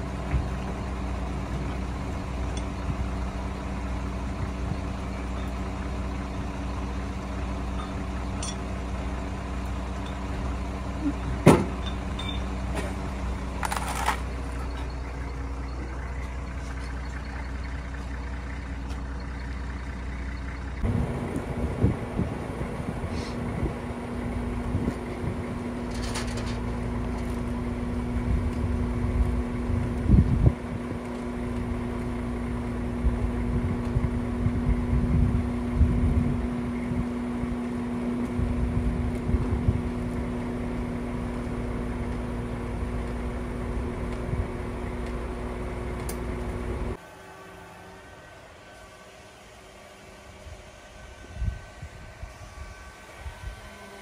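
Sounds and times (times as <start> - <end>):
forklift engine running: 0.0 - 54.0
loud clunk: 11.4 - 13.0.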